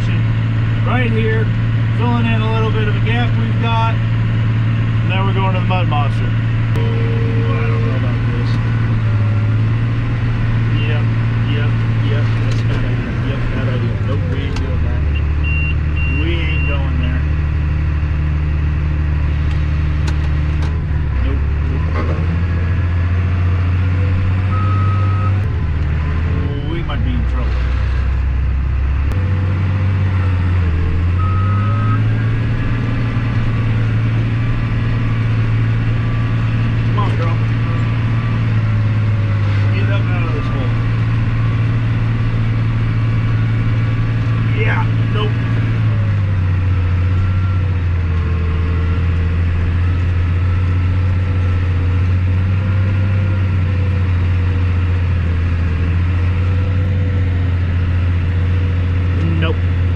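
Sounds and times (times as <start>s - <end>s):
tractor engine working hard: 0.0s - 59.9s
short beep: 15.1s - 16.8s, 31.2s - 32.3s.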